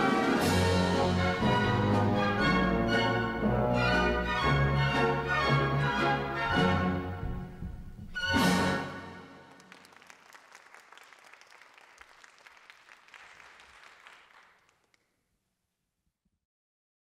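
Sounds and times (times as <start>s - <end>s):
audience applauding: 9.4s - 15.1s.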